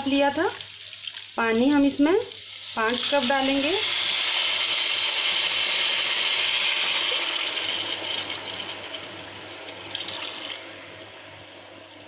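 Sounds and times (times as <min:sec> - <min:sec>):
oil and rice sizzling: 0:00.0 - 0:10.8
water poured into hot pan: 0:02.4 - 0:10.8.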